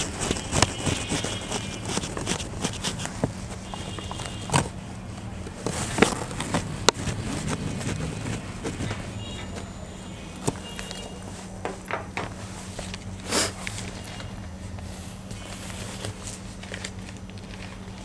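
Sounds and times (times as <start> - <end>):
eraser rubbing on whiteboard: 0.0 - 4.4.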